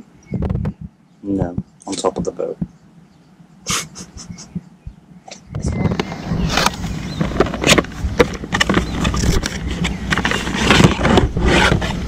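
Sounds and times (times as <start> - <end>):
wind rumble on microphone: 0.0 - 2.8, 3.9 - 12.0
cardboard box rustling: 6.1 - 12.0.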